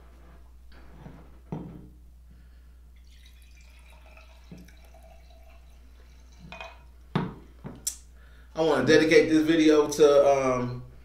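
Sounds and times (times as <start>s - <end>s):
wine pouring into glass: 3.0s - 7.0s.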